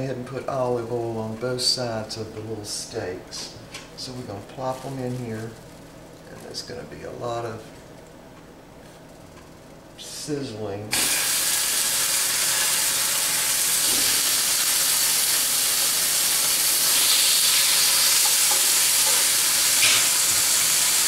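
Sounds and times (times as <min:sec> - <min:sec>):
steaks sizzling in a hot skillet: 0:10.9 - 0:21.0.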